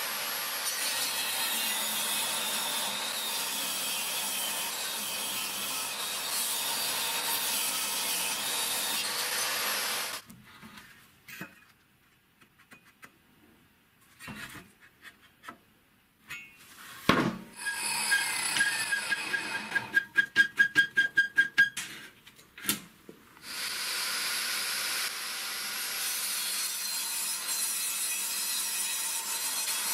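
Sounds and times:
table saw ripping through wood: 0.0 - 10.2, 17.5 - 20.1, 23.4 - 29.9.

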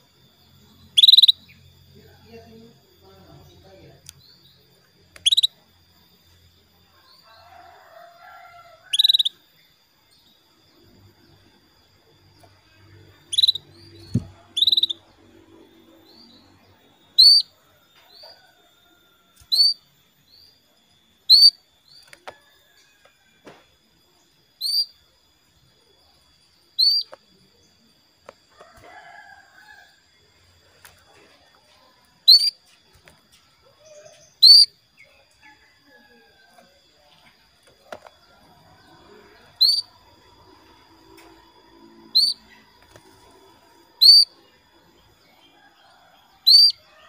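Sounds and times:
canary chirps: 0.4 - 2.5, 3.4 - 6.4, 7.0 - 23.2, 24.2 - 25.1, 26.2 - 27.4, 32.1 - 35.8, 36.5 - 47.0.

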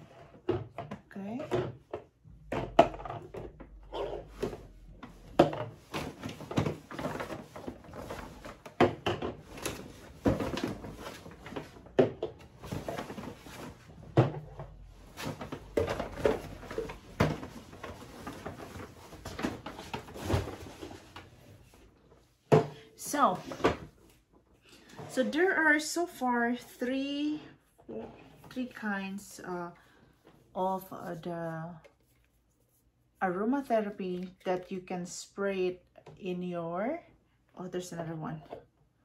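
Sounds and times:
bottles knocking and clattering: 0.4 - 3.8, 4.5 - 18.4.

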